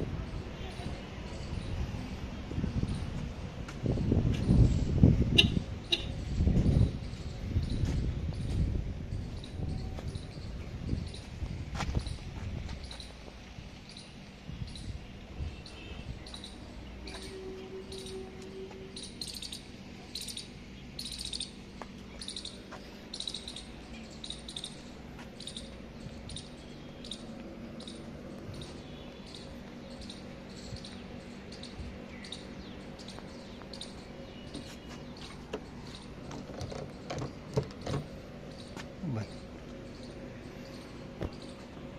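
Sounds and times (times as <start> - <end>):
bird chirping: 13.8 - 41.9.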